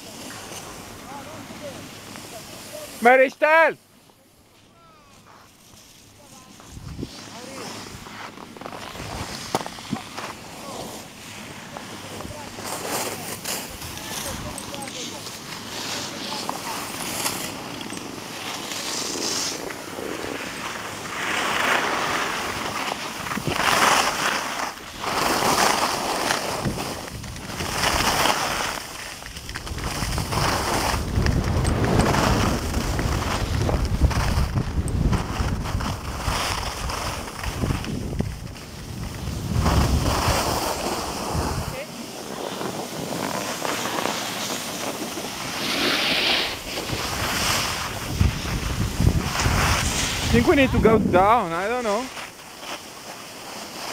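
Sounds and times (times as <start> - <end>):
skis scraping over snow: 0.0 - 53.9
wind on microphone: 6.6 - 8.0, 29.3 - 41.8, 45.4 - 51.6.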